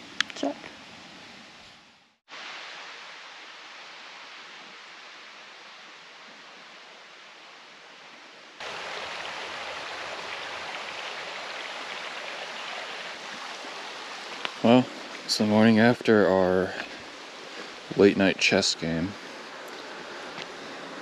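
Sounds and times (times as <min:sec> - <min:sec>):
soft hiss: 0:00.0 - 0:21.0
stream running over rocks: 0:08.6 - 0:21.0.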